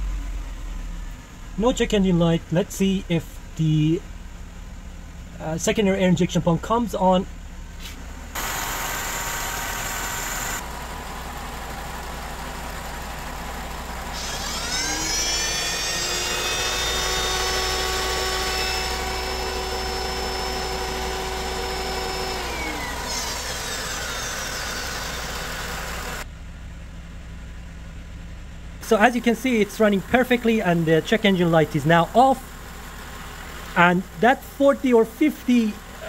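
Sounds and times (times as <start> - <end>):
car engine idling: 0.0 - 36.0
electric air pump whine: 8.4 - 10.6, 14.1 - 26.2.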